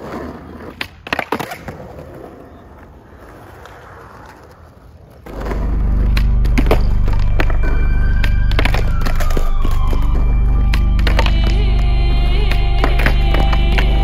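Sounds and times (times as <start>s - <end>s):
skateboard clattering on concrete: 0.0s - 5.5s
skateboard wheels rolling: 0.0s - 14.0s
loud music with heavy bass: 5.4s - 12.7s.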